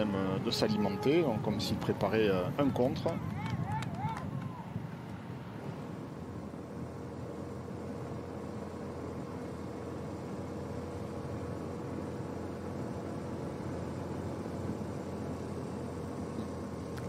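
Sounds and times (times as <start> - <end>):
wind rush: 0.0 - 6.4
engine hum: 0.0 - 17.0.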